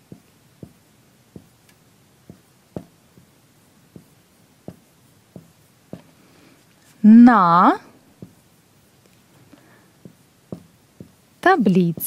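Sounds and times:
marker writing on a whiteboard: 0.0s - 6.2s, 8.2s - 9.2s, 10.0s - 12.0s.

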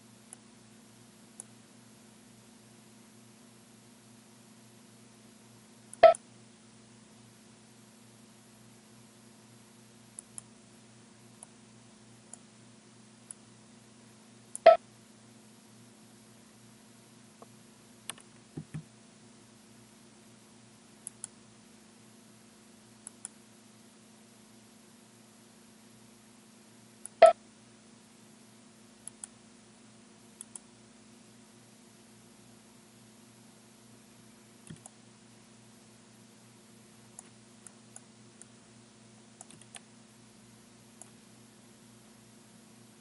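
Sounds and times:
faint low hum: 0.0s - 43.0s
computer mouse clicks: 1.4s - 1.6s, 10.2s - 10.5s, 17.4s - 18.9s, 21.0s - 21.4s, 23.0s - 23.4s, 29.0s - 29.4s, 30.4s - 30.7s, 34.6s - 35.0s, 37.2s - 38.5s, 39.4s - 39.9s, 41.0s - 41.2s
mouse buttons clicking: 5.9s - 6.2s, 14.5s - 14.8s, 27.0s - 27.4s, 29.0s - 29.4s, 30.4s - 30.7s, 34.6s - 35.0s, 39.4s - 39.9s.

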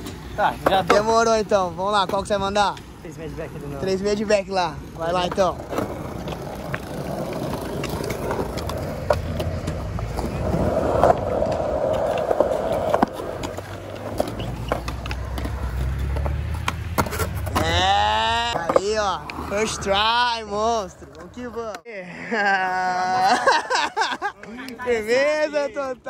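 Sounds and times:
skateboard clacks: 0.0s - 2.9s, 5.0s - 19.8s
skateboard wheels rolling on concrete: 0.0s - 21.9s, 22.5s - 26.0s.

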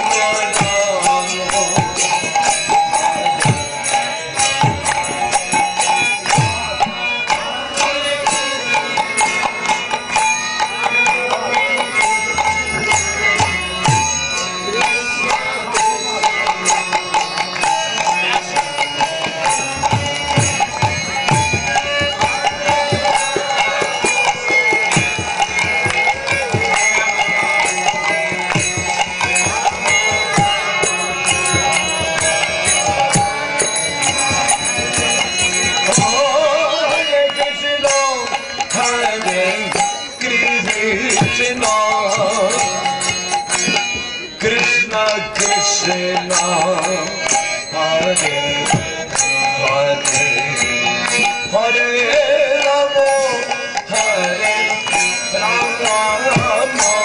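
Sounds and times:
hand drum: 0.0s - 47.1s
hand cymbals clashing: 0.0s - 57.0s.

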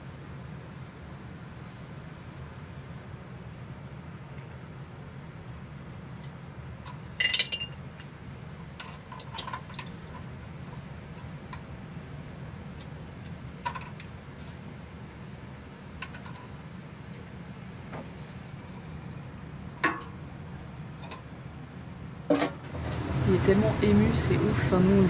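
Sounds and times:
steady low hum: 0.0s - 25.0s
metal pots and utensils clinking: 6.9s - 7.8s.

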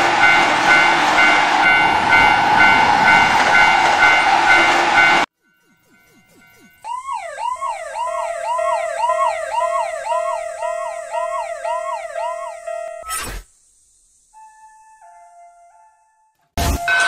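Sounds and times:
cartoon ambulance siren: 1.6s - 13.1s.

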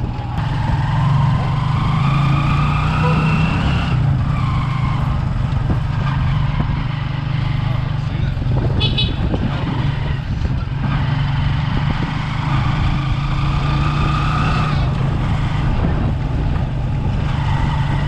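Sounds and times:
motorcycle engine droning: 0.0s - 18.0s.

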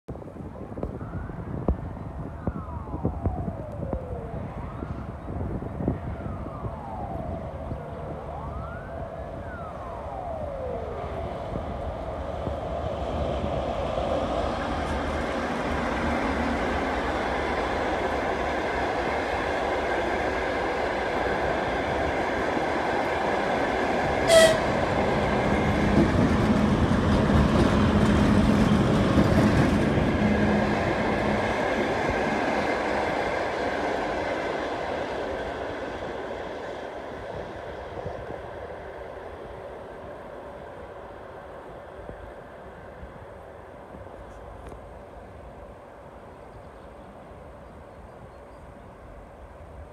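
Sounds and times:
diesel locomotive engine: 0.1s - 49.9s
distant siren wailing: 0.7s - 26.4s
train wheels on rails: 11.3s - 49.9s
train horn toot: 24.2s - 25.0s.

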